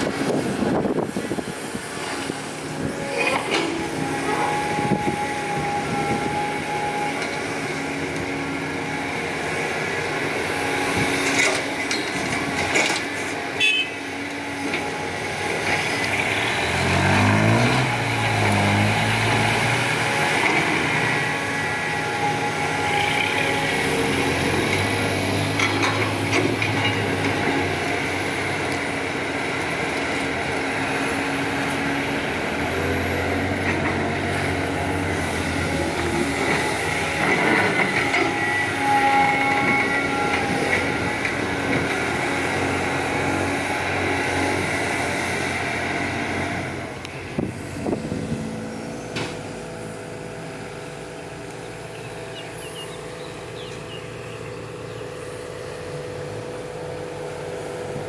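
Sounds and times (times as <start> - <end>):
excavator diesel engine running: 0.0 - 58.0
engine revving up: 15.2 - 27.8.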